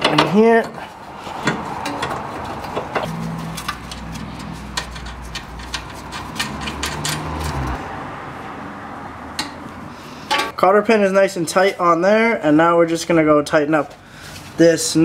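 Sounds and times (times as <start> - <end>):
metal clicks and scrapes: 0.0 - 7.8.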